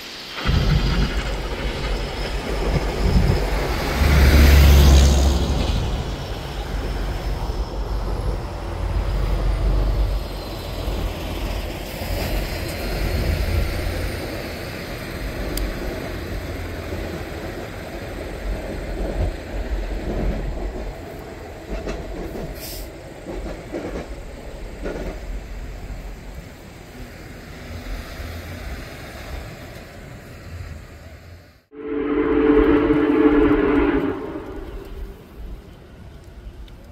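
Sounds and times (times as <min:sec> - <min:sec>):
train wheels clattering over rails: 0:00.2 - 0:08.1, 0:10.0 - 0:26.0
diesel locomotive rumble: 0:31.7 - 0:36.3.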